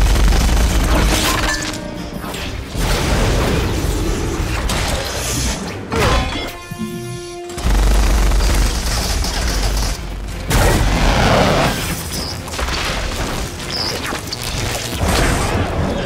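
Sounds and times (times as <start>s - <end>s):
film score music: 0.0s - 16.0s
blasts and impacts: 2.4s - 5.7s, 7.6s - 16.0s.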